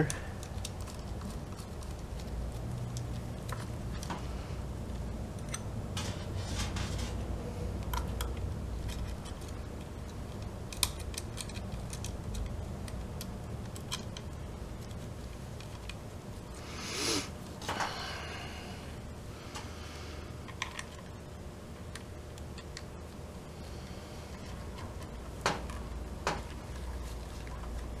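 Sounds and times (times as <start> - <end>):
low steady hum: 0.0 - 28.0
plastic and metal parts clicking: 7.8 - 15.0.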